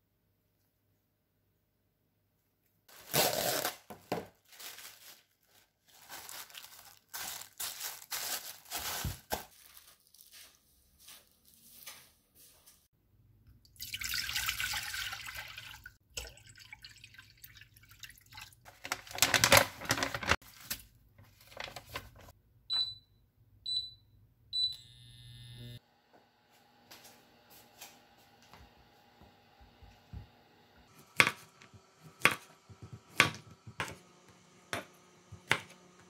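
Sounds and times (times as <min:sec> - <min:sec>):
plastic packet rustling: 0:02.9 - 0:10.6, 0:18.7 - 0:22.3
short beeps: 0:22.7 - 0:25.8.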